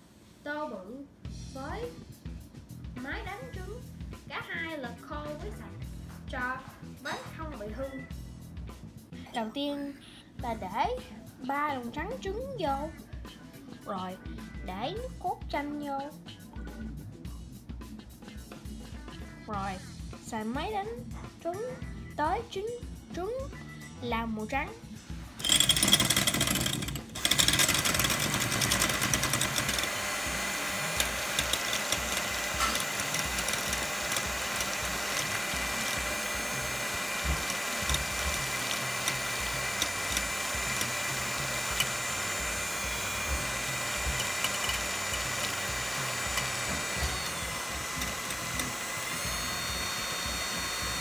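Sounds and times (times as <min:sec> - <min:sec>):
electric hand mixer whipping: 0:25.4 - 0:51.0.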